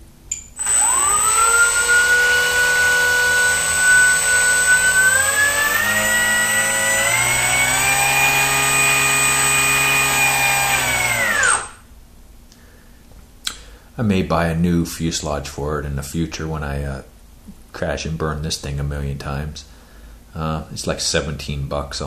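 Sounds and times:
electric motor propeller whine: 0.6s - 11.8s.

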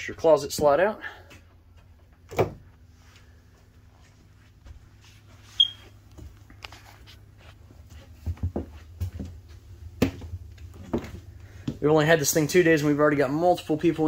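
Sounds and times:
faint steady hum: 0.0s - 14.0s
footsteps on trailer floor: 1.5s - 11.9s
short high squeak: 5.5s - 6.0s.

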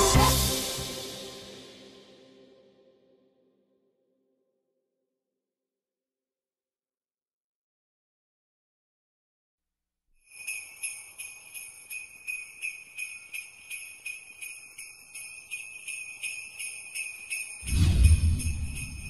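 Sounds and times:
sleigh bells jingling: 0.0s - 2.0s, 10.2s - 19.0s
deep bass boom: 17.6s - 19.0s.

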